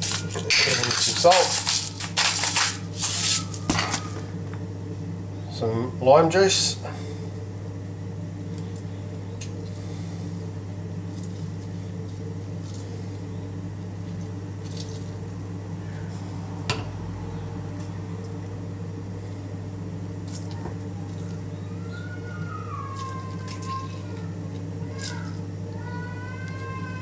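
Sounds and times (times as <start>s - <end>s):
steady low hum: 0.0s - 27.0s
hand squishing wet salsa: 11.0s - 16.4s, 20.2s - 25.4s.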